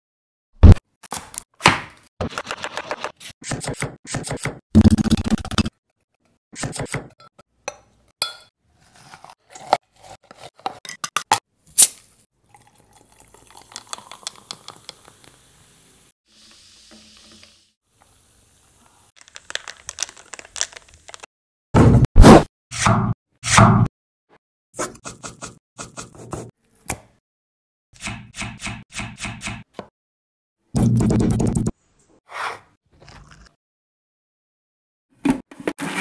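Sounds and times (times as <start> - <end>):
soda fizzing: 12.5 - 17.5.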